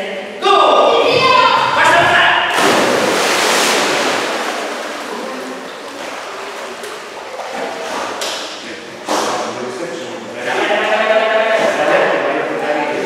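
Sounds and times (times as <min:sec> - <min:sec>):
dog splashing into pool: 0:02.5 - 0:08.6
water washing and settling: 0:02.5 - 0:08.6.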